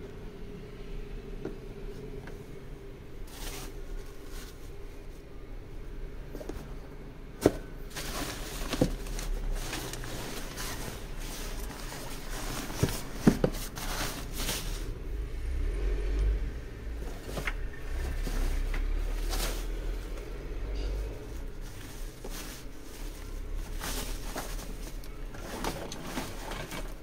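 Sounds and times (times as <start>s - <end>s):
plastic rustling: 3.2s - 5.3s, 7.3s - 15.1s, 17.0s - 27.0s.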